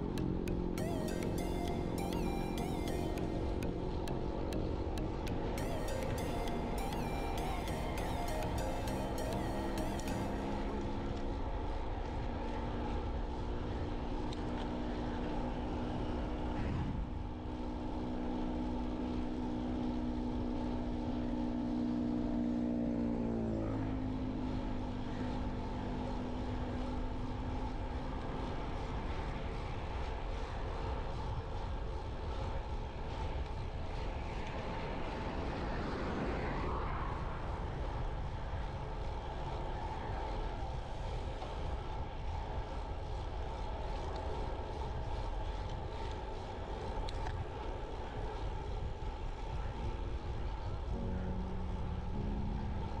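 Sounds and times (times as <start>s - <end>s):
wind rumble on microphone: 11.9s - 21.8s, 25.4s - 53.0s.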